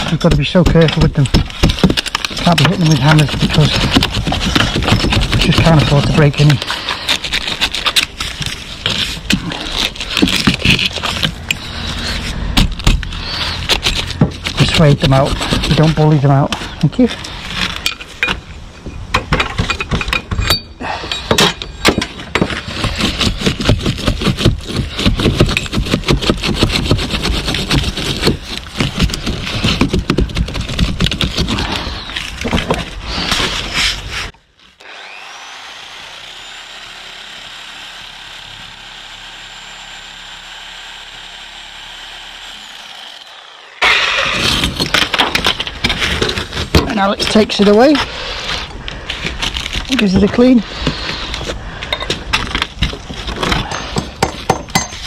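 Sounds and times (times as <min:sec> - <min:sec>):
reciprocating saw cutting mortar: 0:00.0 - 0:17.8, 0:22.1 - 0:51.6
saw humming with high whine: 0:34.8 - 0:45.3.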